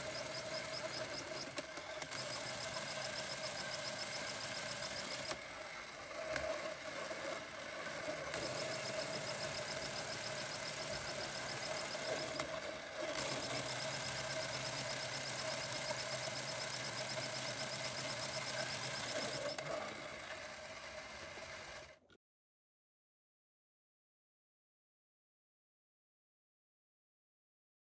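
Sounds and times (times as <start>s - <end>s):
toy engine model whirring: 0.0s - 22.1s.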